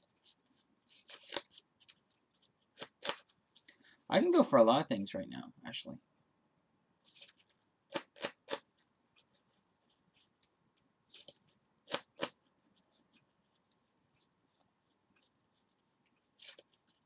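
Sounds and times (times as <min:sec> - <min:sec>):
card sleeves rustling: 0:00.0 - 0:03.6, 0:07.0 - 0:17.0.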